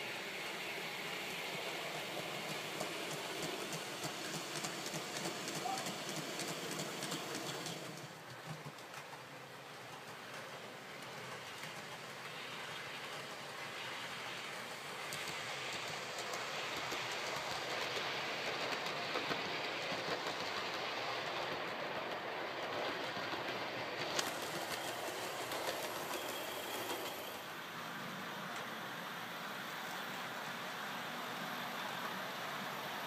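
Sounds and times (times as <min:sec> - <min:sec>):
model train wheels clicking on rails: 0:00.0 - 0:33.0.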